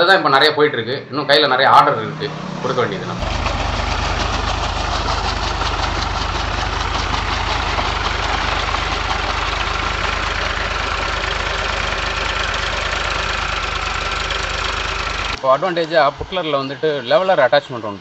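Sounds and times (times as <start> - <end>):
tractor diesel engine running: 1.6 - 16.0
churning water and mud hiss: 3.2 - 15.4.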